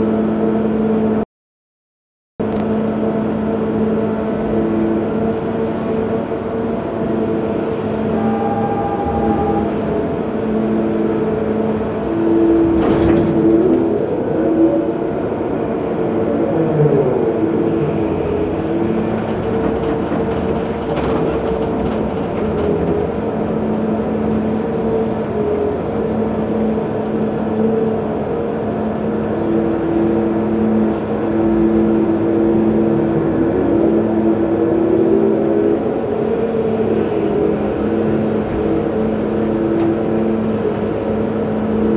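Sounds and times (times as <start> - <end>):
excavator engine and hydraulics drone: 0.0 - 1.2, 2.4 - 41.9.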